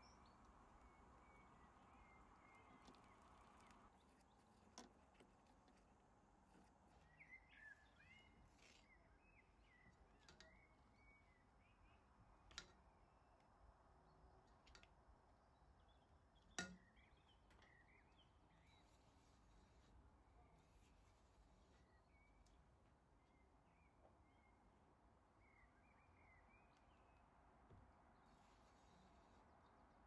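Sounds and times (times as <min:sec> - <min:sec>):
faint bird chirps: 0:00.0 - 0:05.2, 0:06.6 - 0:12.6, 0:15.5 - 0:27.4
faint clicks: 0:00.0 - 0:07.0.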